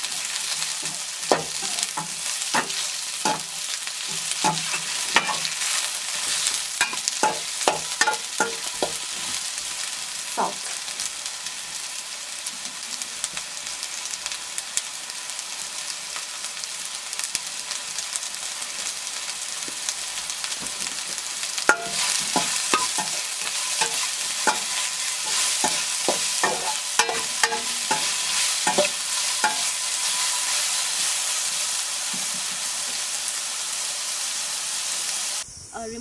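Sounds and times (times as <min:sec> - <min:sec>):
spatula scraping a pan: 0:00.0 - 0:09.5, 0:10.4 - 0:10.8, 0:21.7 - 0:31.3
vegetables sizzling in oil: 0:00.0 - 0:36.0.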